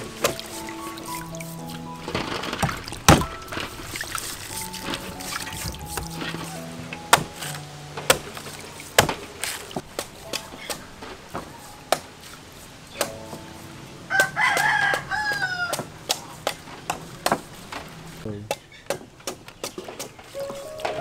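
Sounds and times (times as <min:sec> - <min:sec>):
rooster crowing: 0:14.1 - 0:15.9.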